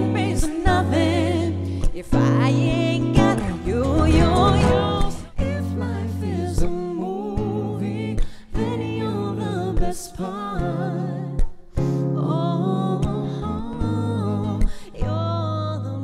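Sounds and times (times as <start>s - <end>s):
strummed acoustic guitar: 0.0s - 7.5s, 11.3s - 12.4s
woman singing with vibrato: 0.0s - 16.0s
man singing: 3.2s - 5.7s.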